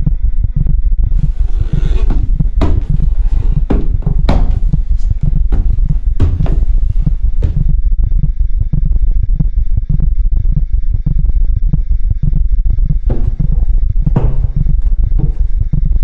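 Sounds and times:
boots thudding up stairs: 1.1 - 7.7, 13.0 - 16.0.

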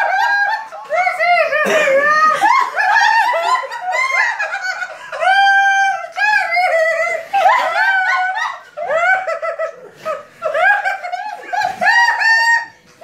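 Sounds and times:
woman laughing in high squeals: 0.0 - 13.0.

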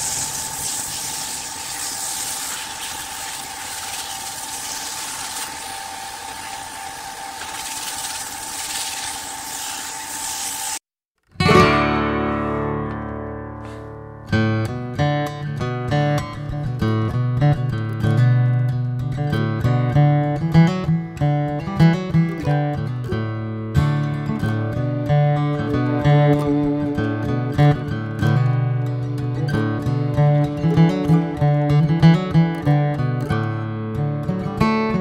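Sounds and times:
lathe whine: 0.0 - 10.8
sandpaper hissing on spinning wood: 0.0 - 10.8
acoustic guitar music: 11.3 - 35.0.

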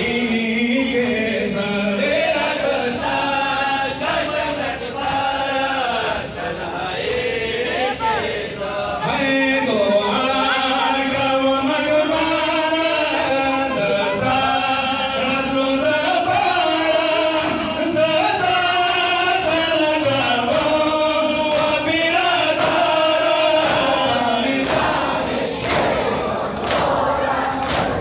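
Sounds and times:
men chanting a slow lament: 0.0 - 28.0
hands slapping chests: 26.6 - 27.0, 27.6 - 28.0.

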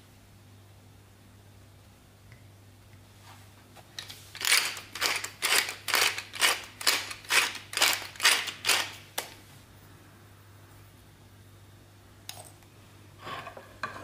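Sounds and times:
pepper mill grinding: 4.0 - 9.2.

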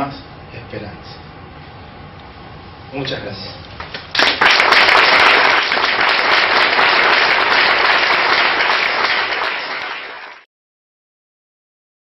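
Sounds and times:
audience applauding: 3.8 - 10.5.

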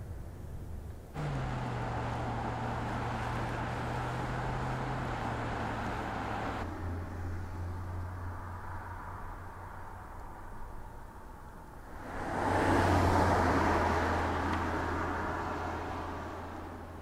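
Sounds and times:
tyre and road noise: 0.0 - 17.0
car engine running: 1.2 - 6.6.

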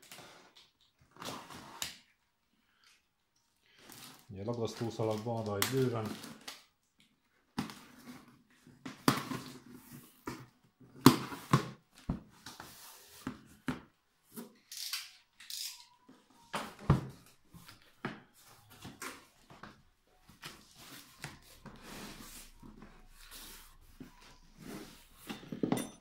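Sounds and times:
packing tape ripping: 14.6 - 15.9.

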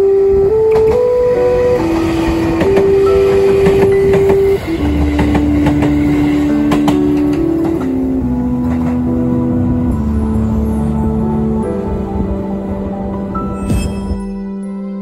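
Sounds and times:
electric train passing: 0.0 - 14.3
background music of held notes: 0.0 - 15.0
wheels clicking over rail joints: 1.8 - 10.6.

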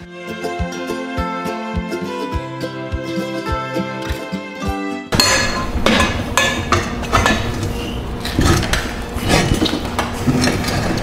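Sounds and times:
background music: 0.0 - 6.8
metal clanking of tire changer: 5.2 - 9.0.

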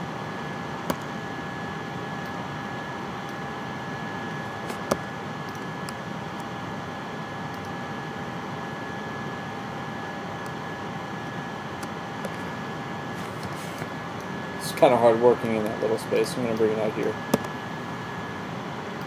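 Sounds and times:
mouse clicks: 17.3 - 17.5.

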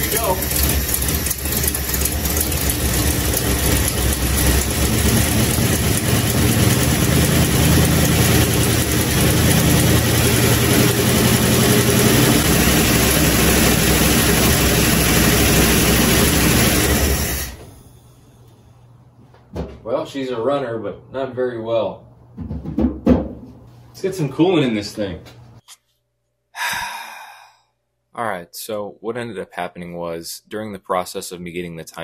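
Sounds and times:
engine running poorly: 0.0 - 18.6.

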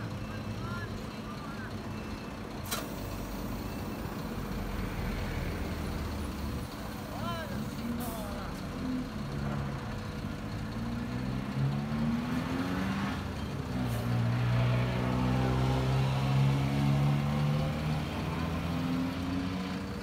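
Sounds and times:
truck engine revving: 7.5 - 20.0.

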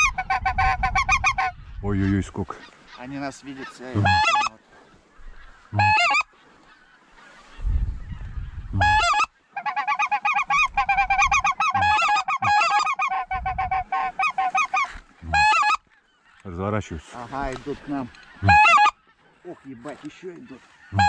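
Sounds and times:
goose honking: 2.6 - 4.6, 5.3 - 7.6, 8.7 - 21.0.

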